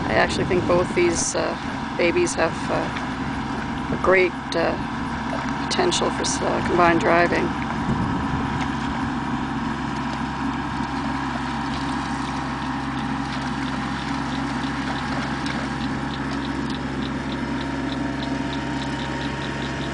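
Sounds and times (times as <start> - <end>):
mechanical motor hum: 0.0 - 19.9
light regular ticking: 10.8 - 19.9.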